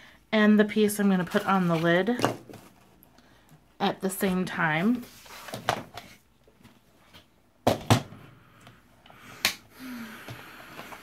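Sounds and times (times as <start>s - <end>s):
soft sliding rustle: 4.7s - 5.6s.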